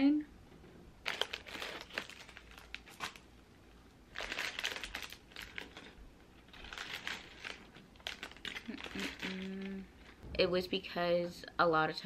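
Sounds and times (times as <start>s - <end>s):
plastic bag crinkling: 1.0s - 3.3s, 4.1s - 10.2s
small plastic pieces rattling: 4.2s - 9.7s.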